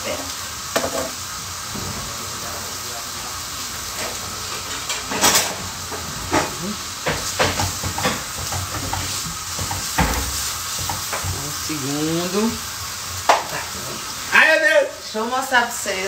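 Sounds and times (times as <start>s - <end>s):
steady hiss: 0.0s - 16.0s
knocks and clicks at kitchen counter: 6.3s - 11.4s.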